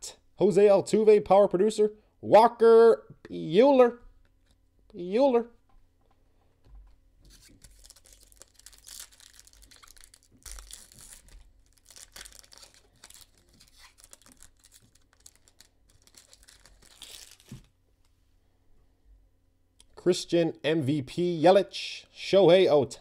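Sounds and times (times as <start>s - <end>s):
foil wrapper crinkling and tearing: 7.3s - 17.7s.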